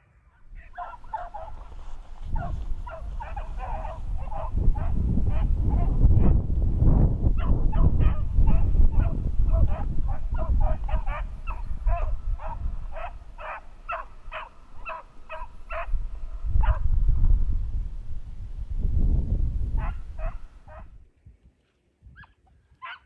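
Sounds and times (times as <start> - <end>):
low rumbling noise: 0.0 - 21.0
beagles baying: 0.3 - 6.4, 7.4 - 16.8, 19.8 - 20.9.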